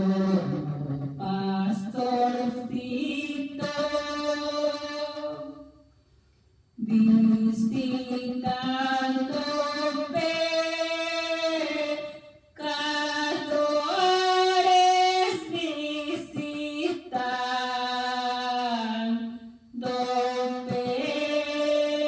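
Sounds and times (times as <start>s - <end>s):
woman singing into microphone: 0.0s - 5.6s, 6.8s - 22.0s.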